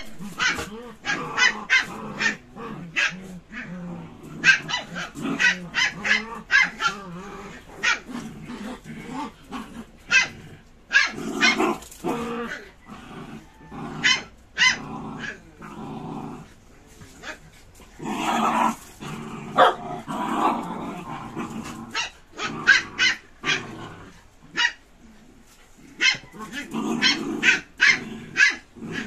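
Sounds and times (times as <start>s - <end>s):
dogs barking and yipping: 0.0s - 3.3s, 4.4s - 7.0s, 7.7s - 8.1s, 10.1s - 11.8s, 13.9s - 15.4s, 19.5s - 20.6s, 21.8s - 23.7s, 24.5s - 24.8s, 25.9s - 29.0s
dogs growling: 0.0s - 29.0s.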